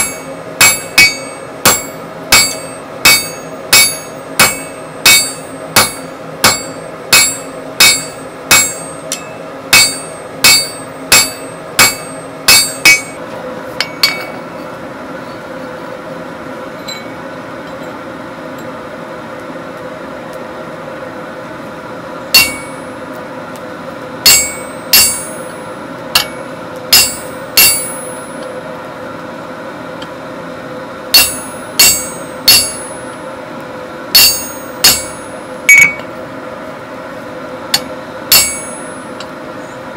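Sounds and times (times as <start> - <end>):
hammer striking steel on anvil: 0.0 - 13.2, 13.8 - 14.5, 22.3 - 22.9, 24.2 - 28.5, 31.1 - 33.2, 34.1 - 36.1, 37.7 - 39.3.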